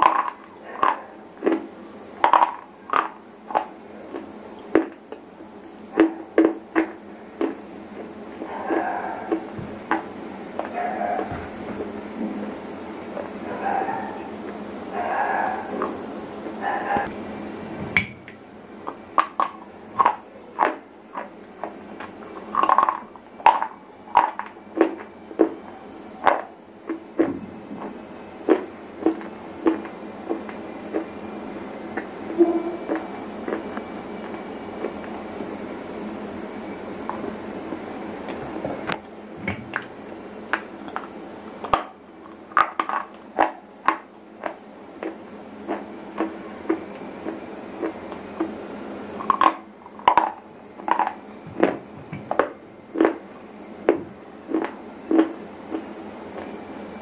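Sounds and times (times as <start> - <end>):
stone being chewed crunching: 32.8 - 35.2, 39.7 - 48.5, 49.2 - 53.2, 53.8 - 56.6.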